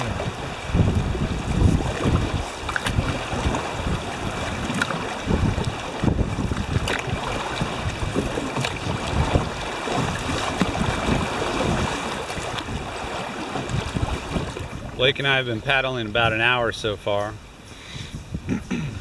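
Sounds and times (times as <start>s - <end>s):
creek water rushing and splashing: 0.0s - 17.8s
wind buffeting microphone: 0.0s - 19.0s.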